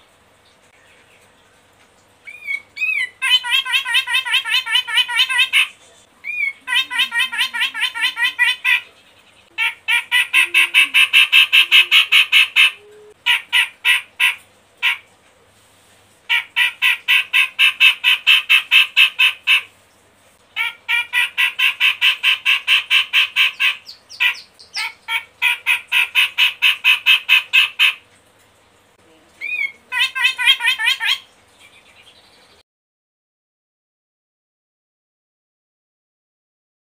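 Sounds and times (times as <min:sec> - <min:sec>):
bulbul chattering song: 0:02.2 - 0:15.1, 0:20.6 - 0:28.0, 0:29.4 - 0:32.6.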